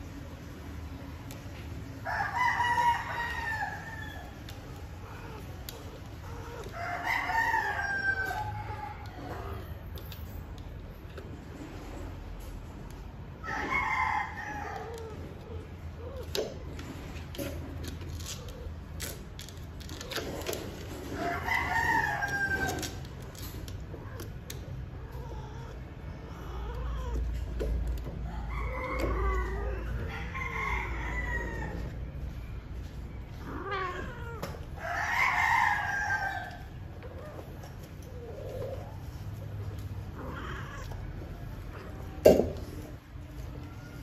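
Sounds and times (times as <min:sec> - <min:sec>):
rooster crowing: 0:02.0 - 0:05.4, 0:06.2 - 0:09.6, 0:13.4 - 0:15.2, 0:21.1 - 0:23.0, 0:28.2 - 0:32.4, 0:34.8 - 0:36.8.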